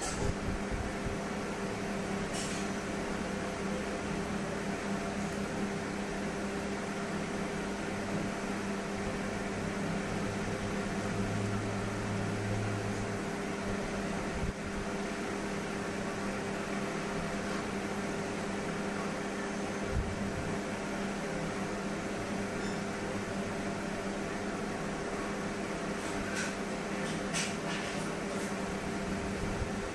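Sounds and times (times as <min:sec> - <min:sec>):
appliance humming: 0:00.0 - 0:29.9.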